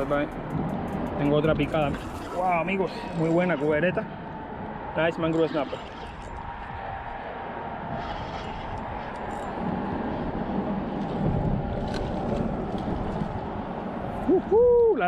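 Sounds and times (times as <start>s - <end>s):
traffic rumble on bridge: 0.0s - 15.0s.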